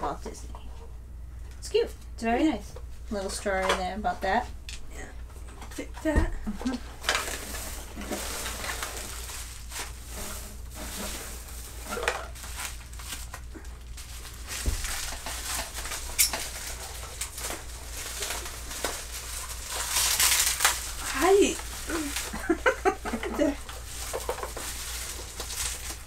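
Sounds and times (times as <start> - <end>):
bubble wrap and paper crinkling: 6.5 - 26.0.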